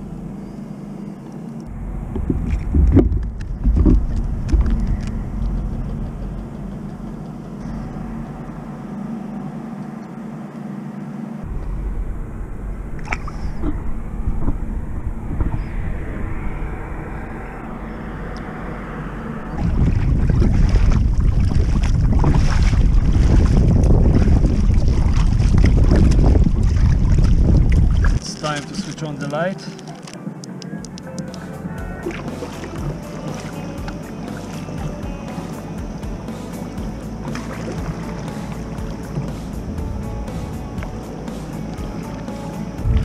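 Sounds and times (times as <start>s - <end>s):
water around a hull: 0.0s - 43.0s
kayak paddling: 1.3s - 11.7s, 19.4s - 43.0s
wind on the microphone: 1.7s - 6.4s, 11.4s - 28.3s, 42.8s - 43.0s.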